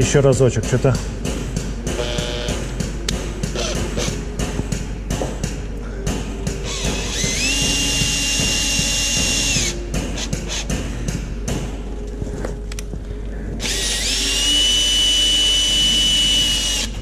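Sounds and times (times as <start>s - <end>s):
power drill whining: 2.0s - 2.7s, 3.6s - 4.2s, 6.6s - 10.6s, 13.6s - 17.0s.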